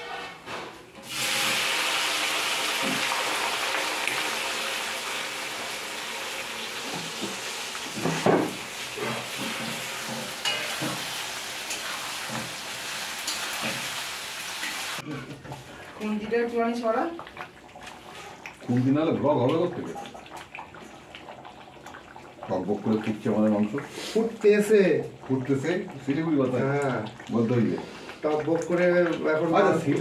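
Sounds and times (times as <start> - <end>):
spatula scraping and knocking pan: 0.0 - 1.1, 6.9 - 12.6
onions sizzling in hot oil: 1.0 - 15.0.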